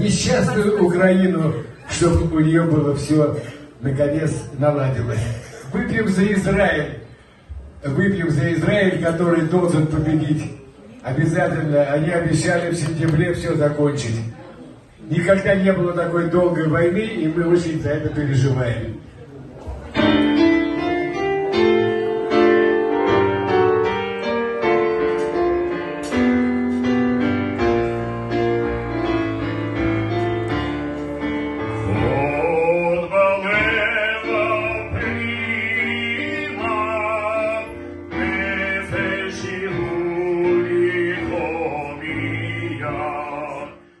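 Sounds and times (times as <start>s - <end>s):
piano chords: 19.8s - 44.0s
man singing with vibrato: 30.7s - 44.0s.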